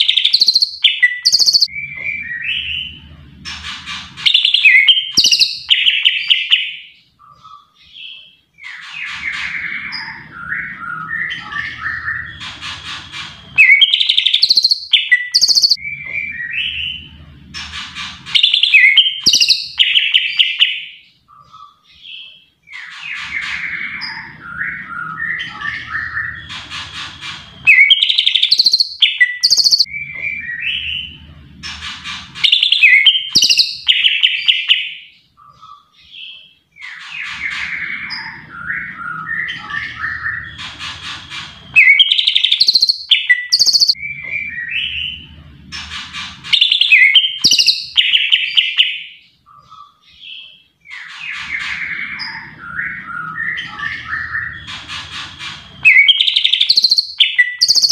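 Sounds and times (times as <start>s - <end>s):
bird singing chirps and whistles: 0.0s - 3.0s, 4.2s - 17.2s, 18.3s - 31.2s, 32.4s - 45.3s, 46.5s - 57.9s.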